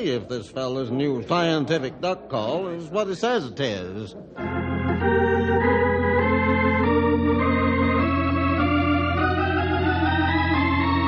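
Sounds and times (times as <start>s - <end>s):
organ chords over bass note: 4.4s - 11.0s.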